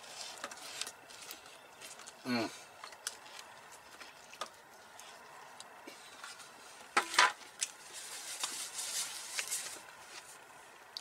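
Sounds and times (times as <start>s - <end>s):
paper plate and napkin rustling: 0.0s - 2.2s, 5.9s - 10.5s.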